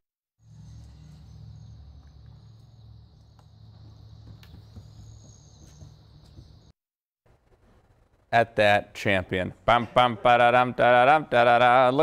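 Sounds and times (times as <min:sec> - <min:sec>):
low outdoor rumble: 0:00.4 - 0:06.7.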